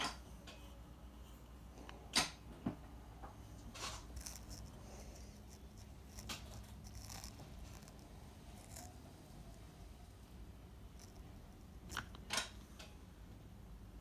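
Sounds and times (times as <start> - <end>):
low steady hum: 0.0 - 14.0.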